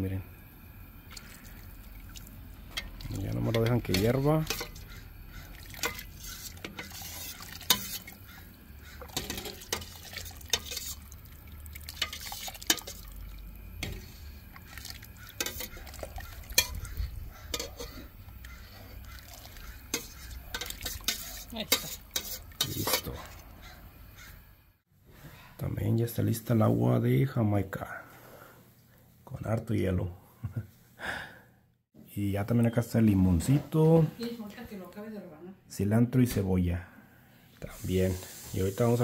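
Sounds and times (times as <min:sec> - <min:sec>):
metal ladle scraping saucepan: 0:02.7 - 0:23.5.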